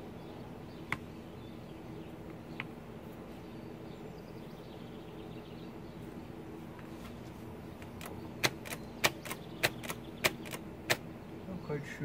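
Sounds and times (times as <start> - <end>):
mechanical calculator clicks: 7.8 - 11.0.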